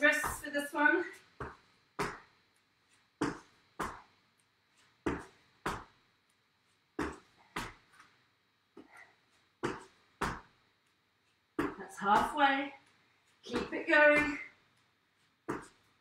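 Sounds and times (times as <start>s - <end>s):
feet thudding on hard floor: 1.4s - 2.3s, 3.2s - 4.1s, 5.0s - 6.0s, 7.0s - 8.1s, 8.8s - 10.6s, 11.6s - 12.5s, 13.4s - 14.5s, 15.4s - 16.0s.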